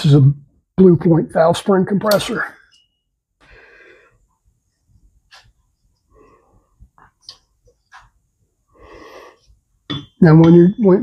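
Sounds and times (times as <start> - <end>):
soft breathing: 3.4 - 7.2, 8.6 - 9.7.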